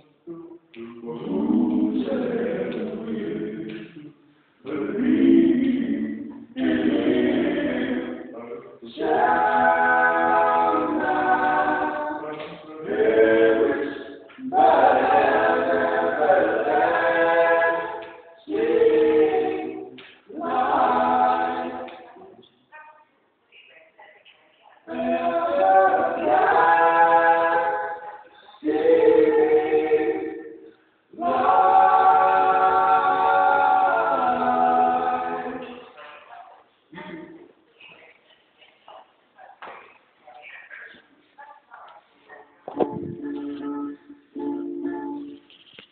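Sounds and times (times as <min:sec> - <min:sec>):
a cappella group singing: 0:00.0 - 0:22.5, 0:24.8 - 0:36.3, 0:42.3 - 0:45.5.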